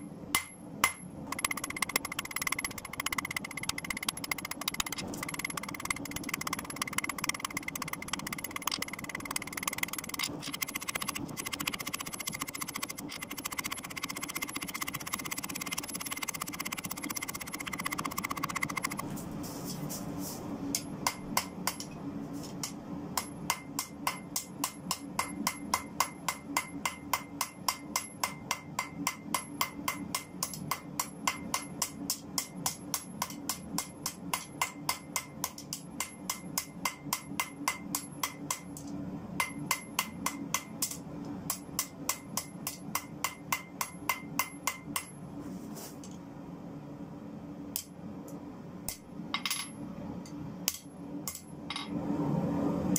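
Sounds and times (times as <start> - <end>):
steady low hum: 0.0 - 25.8
hammer striking hot steel on anvil: 0.3 - 10.2, 20.8 - 21.9, 23.2 - 38.8, 39.4 - 45.2.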